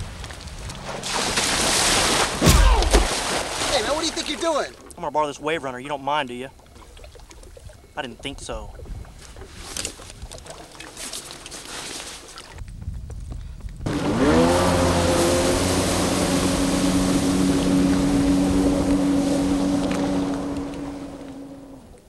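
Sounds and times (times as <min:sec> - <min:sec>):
jet ski engine revving: 0:13.8 - 0:22.0.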